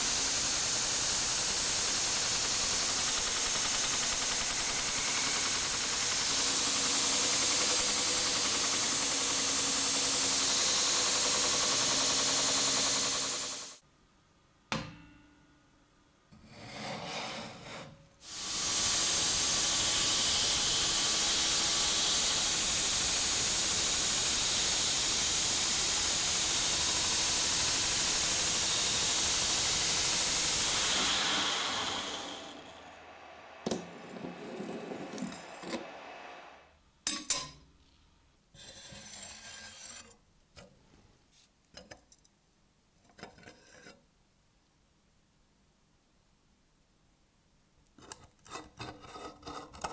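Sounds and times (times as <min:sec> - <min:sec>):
belt grinder grinding steel: 0:18.4 - 0:36.1.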